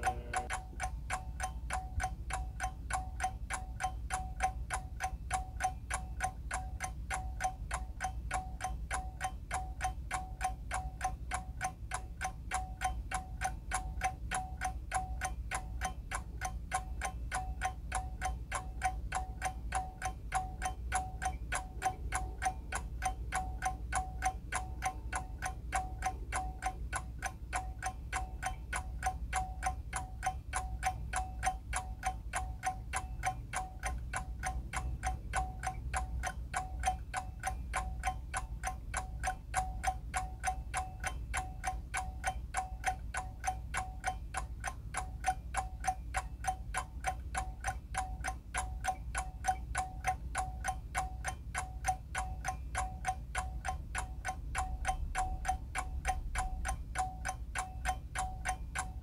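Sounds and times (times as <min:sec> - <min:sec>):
alarm clock ticking: 0:00.0 - 0:59.0.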